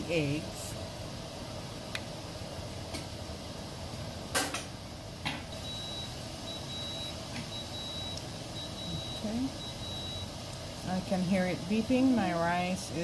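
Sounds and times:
rice cooker beeping: 5.6 - 10.4.

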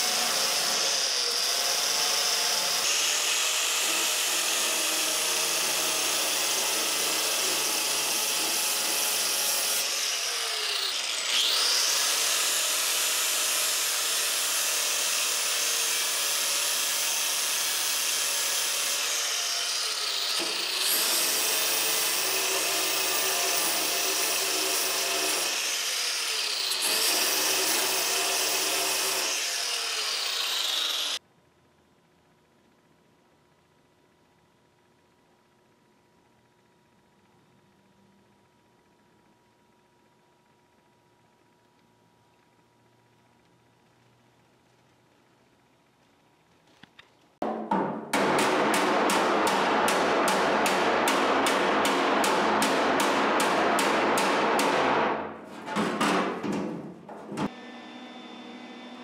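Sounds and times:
angle grinder grinding steel: 2.7 - 31.2.

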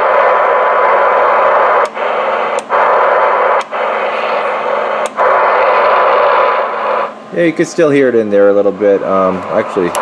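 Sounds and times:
radio receiver hiss: 0.0 - 10.0
radio clicks: 1.6 - 3.9.

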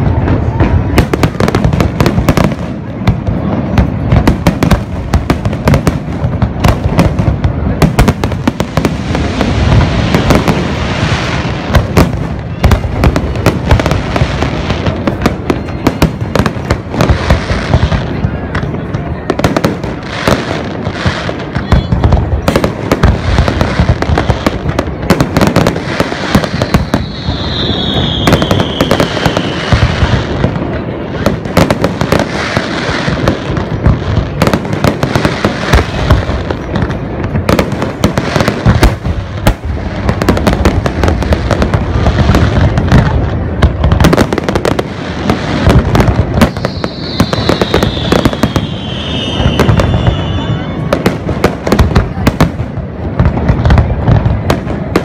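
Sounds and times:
fireworks bangs and crackles: 0.0 - 55.0
falling firework whistle: 25.6 - 30.3, 46.3 - 51.4.

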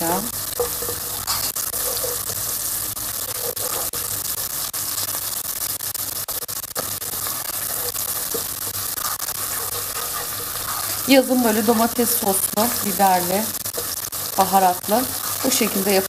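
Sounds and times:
vegetables sizzling in oil: 0.0 - 16.0.

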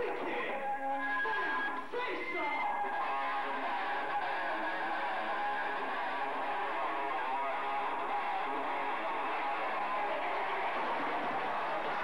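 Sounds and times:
electric guitars strumming: 2.6 - 12.0
live rock band playing: 2.6 - 12.0.

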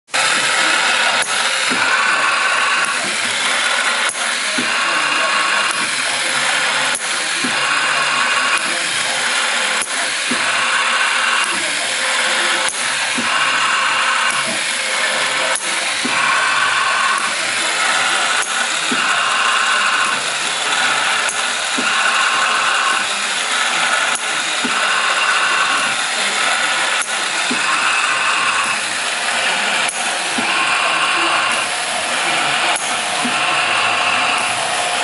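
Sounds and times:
riveting spindles whirring hiss: 0.2 - 35.0
sharp machine click: 0.3 - 4.9, 8.4 - 13.5, 14.2 - 30.5.

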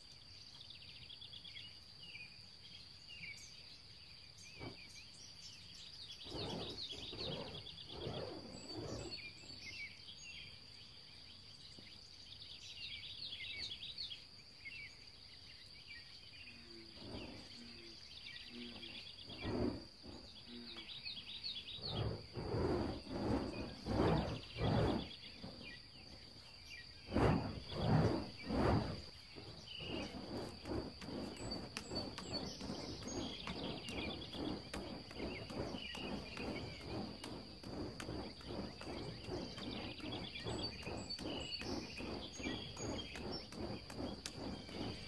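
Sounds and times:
high insect trill: 2.0 - 10.8, 13.6 - 45.0
burning torches whooshing: 6.2 - 9.3, 17.0 - 17.6, 18.7 - 20.3, 21.7 - 45.0
birds chirping: 17.0 - 45.0.

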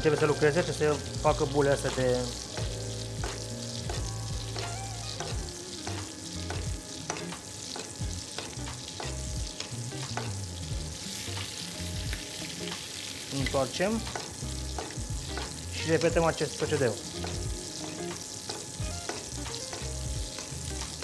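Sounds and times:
meat sizzling in butter: 0.0 - 21.0
metal spoon scraping a pan: 4.6 - 10.4.

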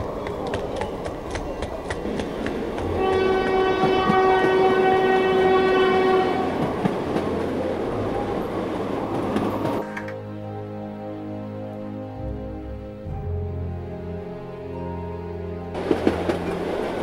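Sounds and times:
train rumbling: 0.0 - 11.0, 13.1 - 17.0
train horn blast: 2.8 - 6.9.

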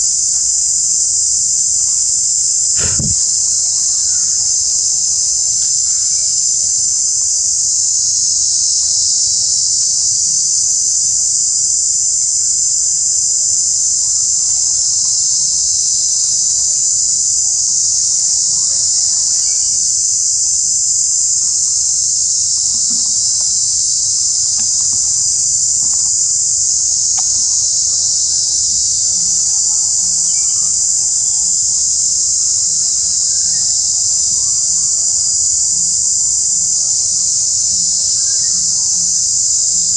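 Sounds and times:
high-pitched insect chorus: 5.6 - 10.1, 14.5 - 39.9.

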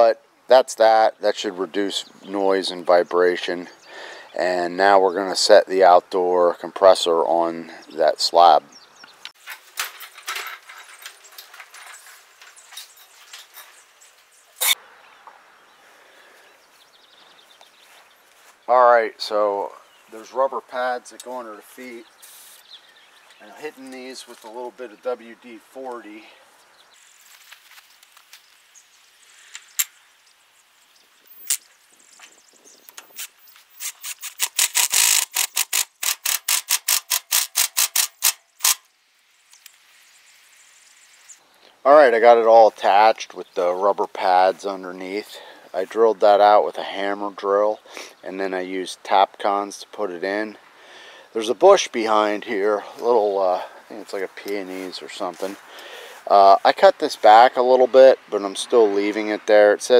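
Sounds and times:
faint steady hiss: 0.0 - 34.9, 38.1 - 59.9
dolly casters rattling on concrete: 9.4 - 13.8
sharp click: 32.9 - 38.9.

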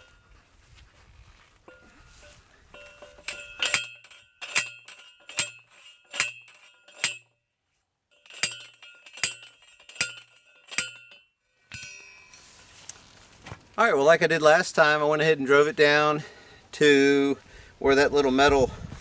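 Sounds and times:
post driver striking metal post: 2.7 - 7.4, 8.1 - 12.4.

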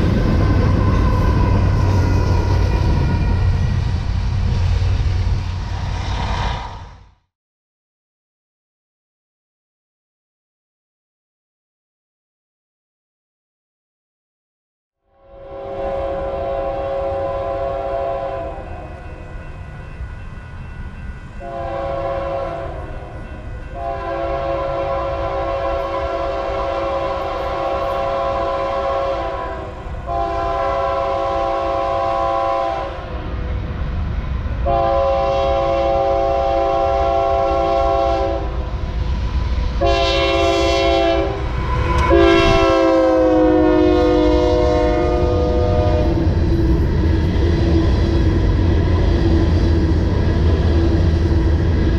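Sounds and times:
train rumble: 0.0 - 7.3, 15.2 - 51.9
locomotive air horn blasts: 15.1 - 19.0, 21.4 - 23.0, 23.7 - 33.1, 34.6 - 38.6, 39.8 - 46.2.

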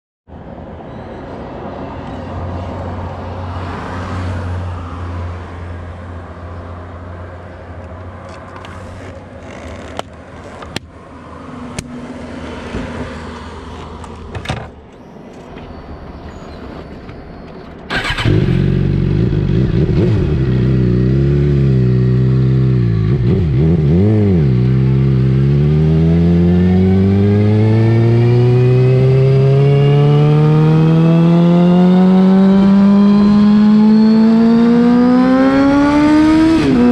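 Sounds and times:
motorcycle engine revving: 17.9 - 36.9.

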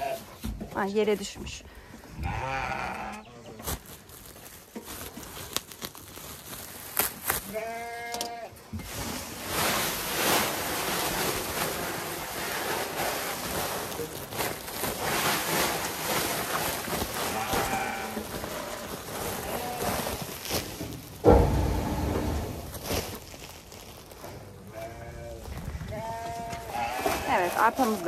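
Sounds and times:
animal bleating: 2.2 - 3.4, 7.5 - 8.5, 17.1 - 20.1, 24.7 - 28.0
grain pouring from a sack: 3.6 - 7.8, 8.8 - 25.9.

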